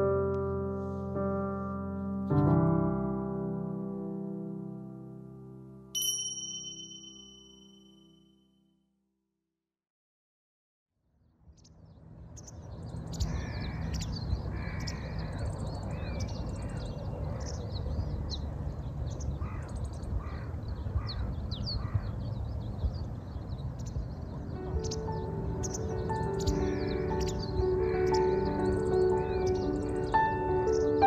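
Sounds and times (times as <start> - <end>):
small birds chirping: 11.5 - 31.0
crows cawing: 13.3 - 17.6, 19.4 - 22.2, 26.4 - 29.6.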